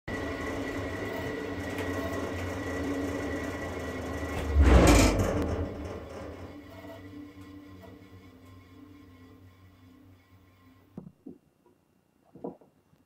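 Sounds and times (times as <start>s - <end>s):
bandsaw running: 0.1s - 11.0s
loud rushing burst: 4.4s - 5.9s.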